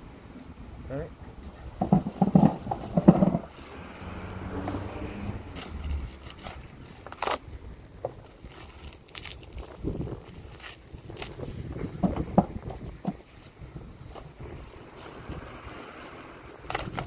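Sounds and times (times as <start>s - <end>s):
packaging rustling and crinkling: 5.4s - 17.0s.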